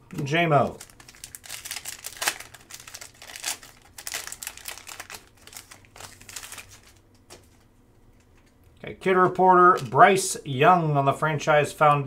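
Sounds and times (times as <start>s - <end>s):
card pack wrapper crinkling: 0.1s - 7.7s, 9.7s - 10.0s
cards being handled: 0.1s - 8.6s.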